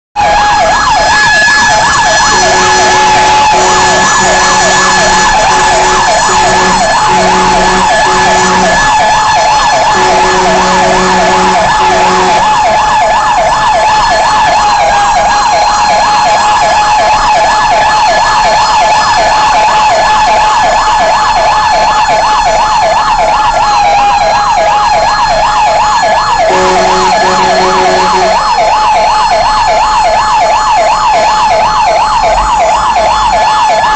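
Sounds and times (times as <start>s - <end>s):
fire truck siren yelping: 0.2s - 33.9s
horn blasts: 2.1s - 9.0s, 9.7s - 12.6s, 26.5s - 28.5s.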